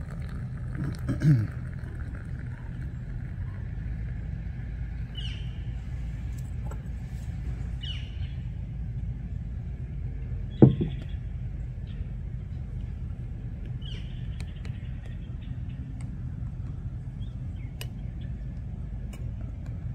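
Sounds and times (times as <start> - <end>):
low outdoor rumble: 0.0 - 19.9
bird chirps: 5.1 - 5.7, 7.8 - 8.4.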